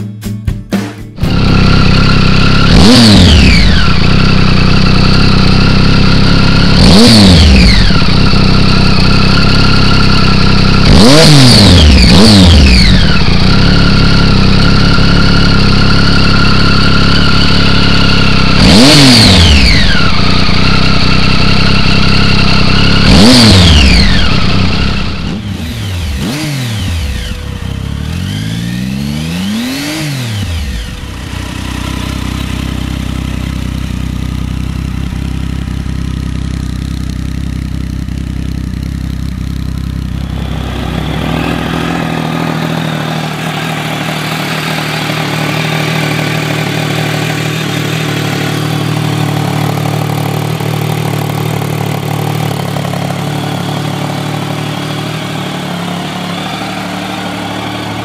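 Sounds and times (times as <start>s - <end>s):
motorcycle engine idling and revving: 1.2s - 58.0s
second motorcycle idling quietly: 12.6s - 23.1s, 30.5s - 58.0s.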